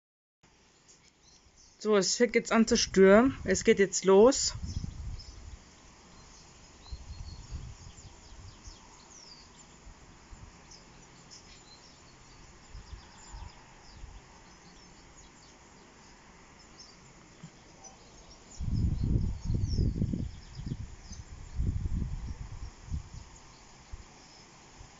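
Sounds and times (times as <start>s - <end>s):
wind buffeting microphone: 2.6s - 5.7s, 6.8s - 9.3s, 18.5s - 24.1s.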